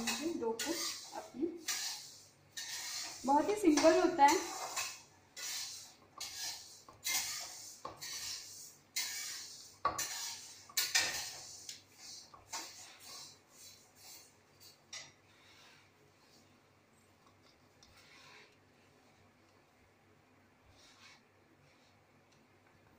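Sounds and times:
fingers scraping steel bowl: 0.0s - 13.3s.

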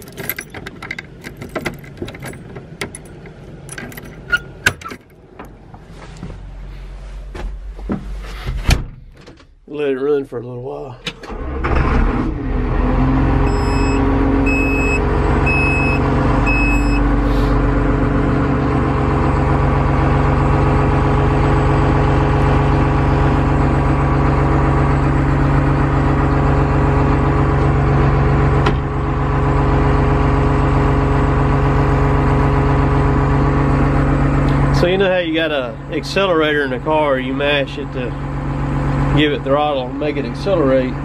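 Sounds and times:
diesel engine idling: 12.4s - 41.0s
short high beeps: 13.5s - 17.1s.

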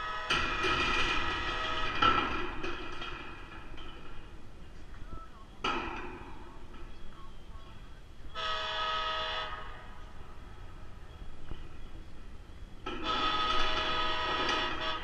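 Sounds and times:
locomotive air horn blasts: 0.0s - 2.2s, 8.3s - 10.2s, 12.9s - 15.0s.

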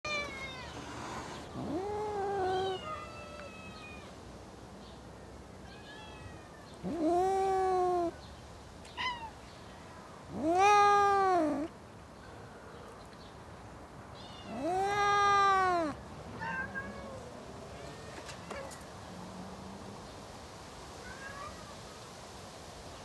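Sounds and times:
cats yowling: 0.1s - 4.2s, 5.7s - 8.2s, 10.3s - 11.7s, 14.2s - 18.8s
short high cat cries: 1.6s - 4.1s, 5.7s - 8.2s, 10.3s - 11.7s, 14.2s - 18.8s.

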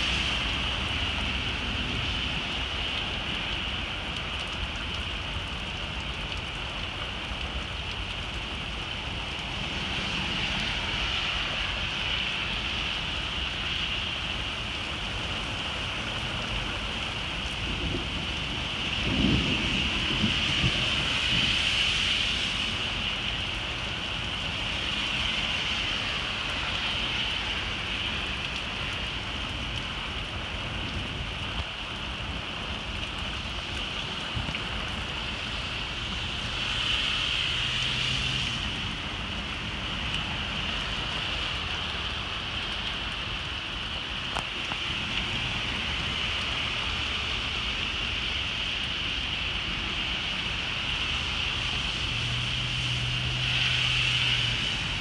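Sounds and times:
heavy rain: 0.0s - 55.0s
low thunder rumble: 17.6s - 21.7s.

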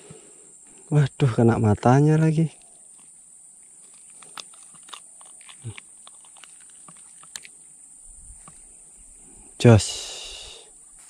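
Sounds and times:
steady high-pitched hiss: 0.0s - 11.0s
hands working hook free: 3.8s - 7.6s.

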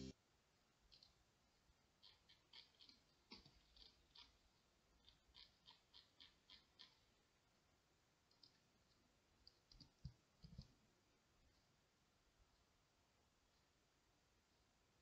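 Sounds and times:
mouse and keyboard clicks: 2.0s - 4.4s, 5.0s - 7.1s, 8.3s - 10.7s.

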